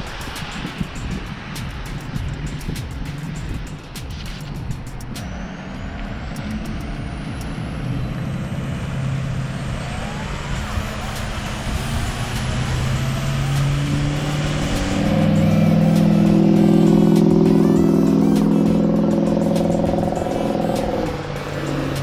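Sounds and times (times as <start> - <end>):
road traffic passing: 0.0 - 22.0
low humming tones: 4.6 - 22.0.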